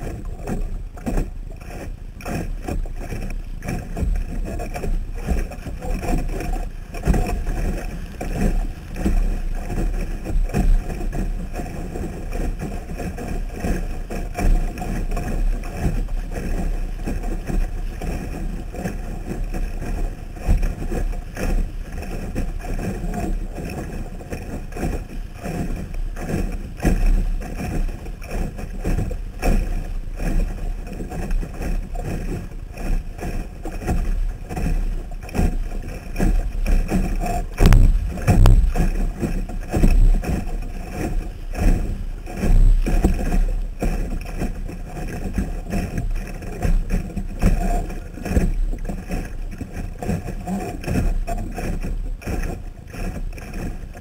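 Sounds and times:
water sloshing against boat hull: 0:00.0 - 0:54.0
wind buffeting: 0:37.4 - 0:39.2
sharp knock: 0:37.6 - 0:38.8.

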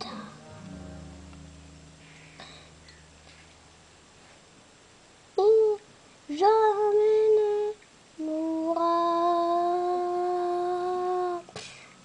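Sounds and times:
boy singing held notes: 0:05.4 - 0:11.9.

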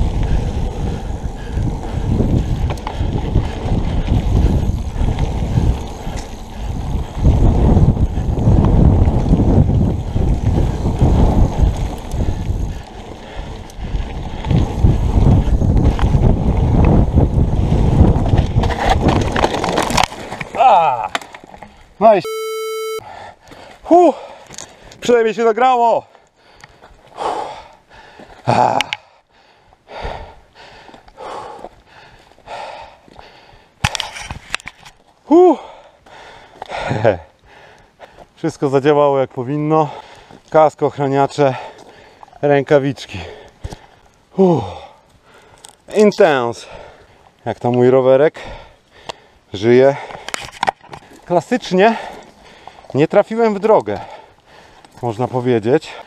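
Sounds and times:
wind buffeting microphone: 0:00.0 - 0:19.4
bike tyres rumbling on dirt: 0:00.0 - 0:21.9
bike rattles and clicks: 0:00.0 - 0:22.0, 0:30.7 - 0:35.2, 0:49.9 - 0:56.0
person breathing hard: 0:26.4 - 0:33.8, 0:35.5 - 0:38.3, 0:48.4 - 0:50.3, 0:52.0 - 0:52.9, 0:54.0 - 0:54.9.

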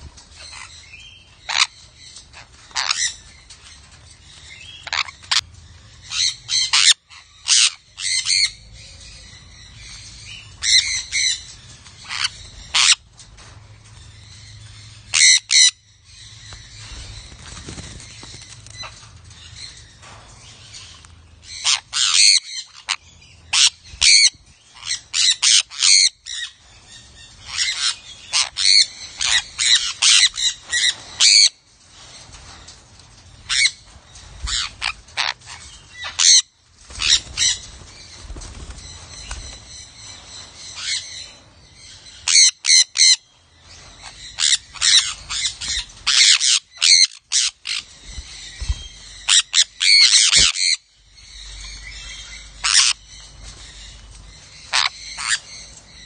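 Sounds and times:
parrots screeching: 0:01.4 - 0:03.2, 0:04.8 - 0:05.4, 0:06.1 - 0:08.6, 0:10.6 - 0:13.0, 0:15.1 - 0:15.8, 0:21.6 - 0:26.6, 0:27.4 - 0:31.6, 0:34.5 - 0:37.6, 0:42.2 - 0:43.2, 0:44.0 - 0:53.0, 0:54.6 - 0:55.7.

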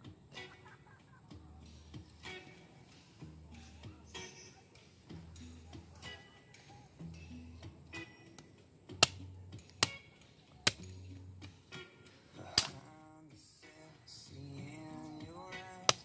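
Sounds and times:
background music: 0:00.0 - 0:16.0
knife chopping wooden stick: 0:10.6 - 0:10.9.

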